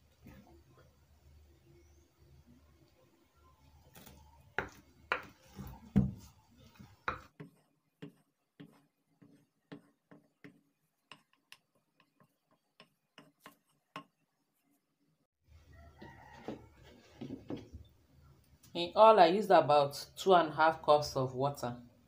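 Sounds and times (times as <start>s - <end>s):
spoon mixing batter in glass bowl: 4.2s - 14.5s.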